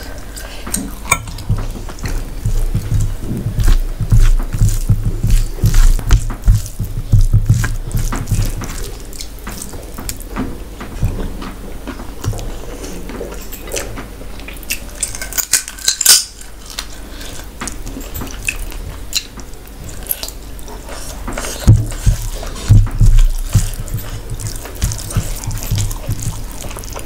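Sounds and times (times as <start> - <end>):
fingers squishing rice: 0.0 - 10.3, 17.7 - 27.0
wet chewing: 0.0 - 27.0.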